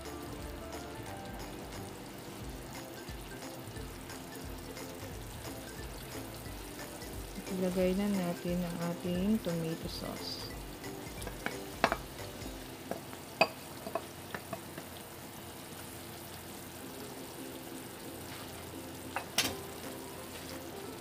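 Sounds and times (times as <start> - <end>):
sauce sizzling in a pan: 0.0 - 21.0.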